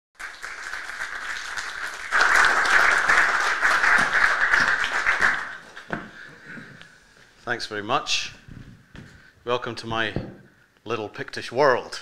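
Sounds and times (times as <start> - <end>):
audience applauding: 0.2 - 6.3.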